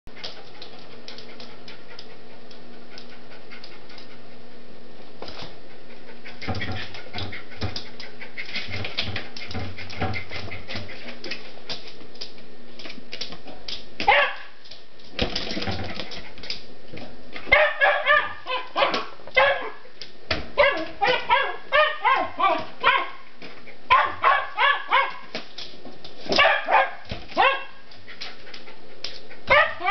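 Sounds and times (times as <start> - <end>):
dog barking in quick bursts: 14.1 - 14.5, 17.5 - 19.8, 20.6 - 23.2, 23.9 - 25.2, 26.4 - 27.8.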